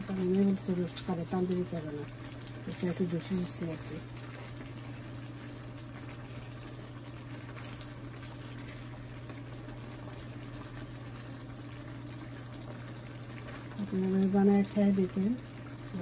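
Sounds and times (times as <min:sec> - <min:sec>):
gravy simmering and bubbling: 0:00.0 - 0:16.0
steady low hum: 0:00.0 - 0:16.0.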